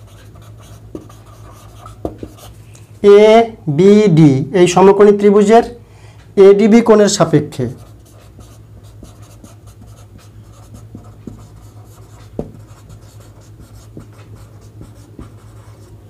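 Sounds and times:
pen scratching and tapping: 0.0 - 2.5, 7.8 - 15.9
low steady hum: 0.0 - 16.0.

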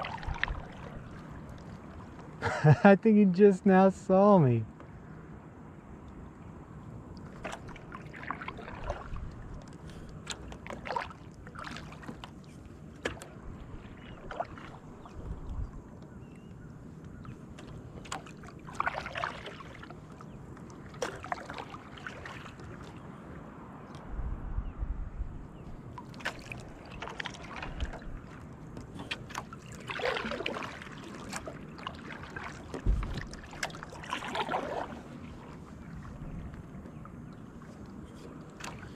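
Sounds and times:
water dripping from paddle: 0.0 - 2.3, 17.0 - 22.8, 25.9 - 34.9
paddle splashing in water: 0.0 - 2.6, 7.1 - 24.1, 25.5 - 38.9
paddle and gear clicks: 7.2 - 23.0, 25.9 - 38.9.

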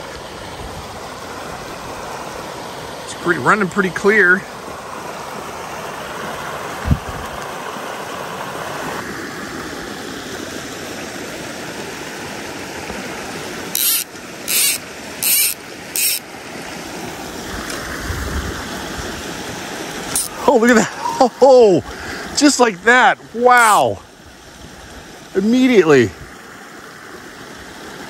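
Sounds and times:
creek running over rocks: 0.0 - 28.0
short high hissing zips: 13.8 - 16.2.

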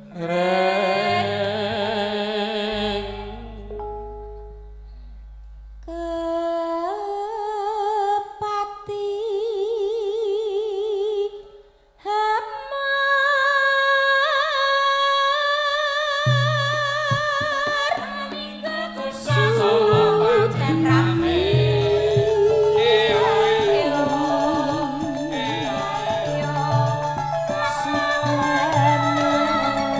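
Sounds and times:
woman singing with vibrato: 0.0 - 3.6, 5.9 - 11.4, 12.1 - 29.9
low accompaniment notes: 19.3 - 29.9.

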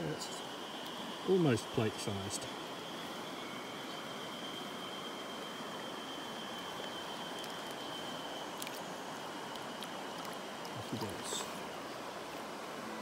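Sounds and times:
high-pitched whine: 0.0 - 12.1
river water rippling over stones: 0.0 - 13.0.

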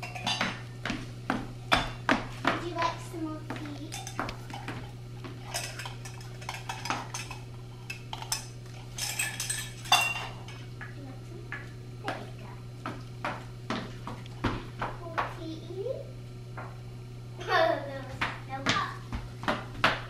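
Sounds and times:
toy dishes clinking: 5.5 - 10.4.

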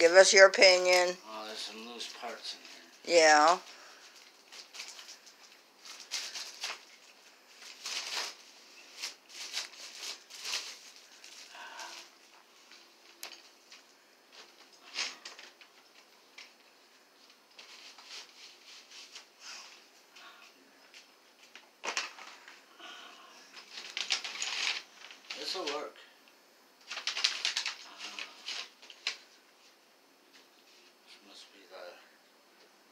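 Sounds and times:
plastic wrapping rustling: 1.7 - 19.8, 21.0 - 22.7, 23.5 - 25.9, 26.8 - 29.4.

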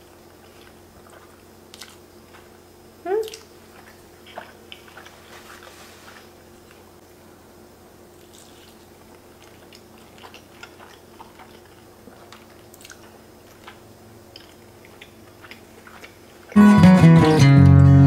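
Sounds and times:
wet chewing: 0.3 - 6.9, 8.2 - 16.6
loud music: 16.6 - 18.0.

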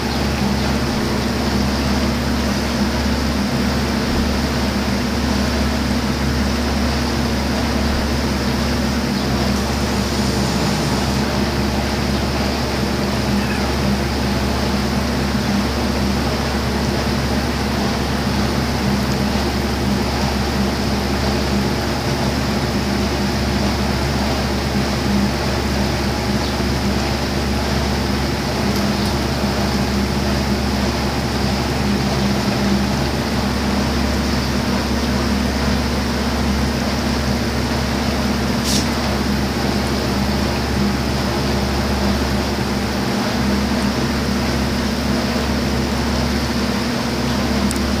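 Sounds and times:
droning hum: 0.0 - 37.6
rushing noise: 8.9 - 13.4.

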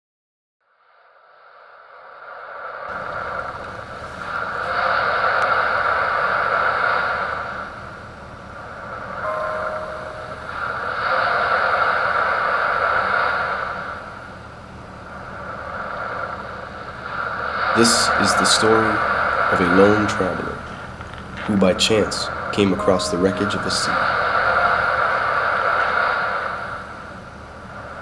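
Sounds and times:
wind and surf rushing: 1.1 - 28.0.

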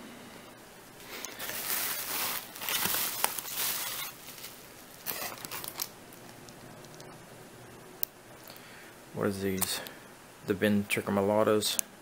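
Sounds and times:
bubble wrap and plastic rustling: 1.0 - 7.2.

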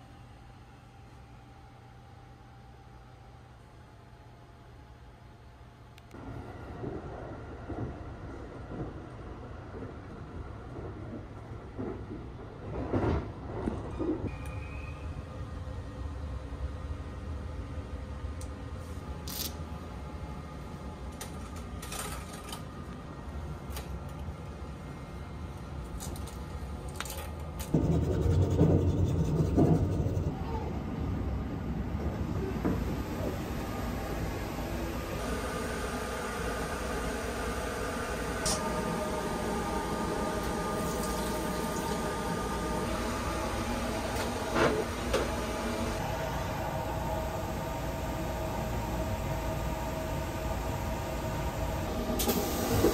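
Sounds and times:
train running low rumble: 0.0 - 52.9.

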